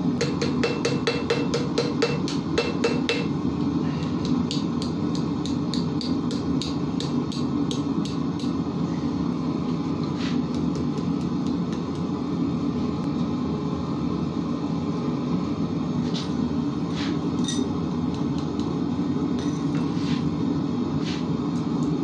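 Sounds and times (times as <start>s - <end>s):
gas burner roaring: 0.0s - 22.0s
hammer striking iron on anvil: 0.2s - 3.3s, 4.2s - 8.6s.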